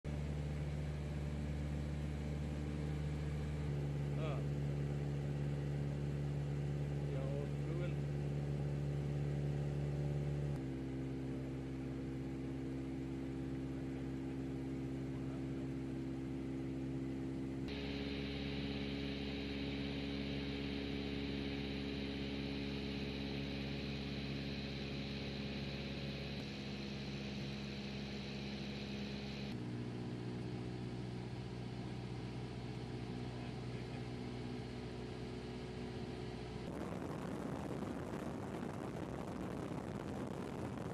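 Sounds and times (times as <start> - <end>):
aircraft engine drone: 17.6 - 40.9
rushing air noise: 36.7 - 40.9.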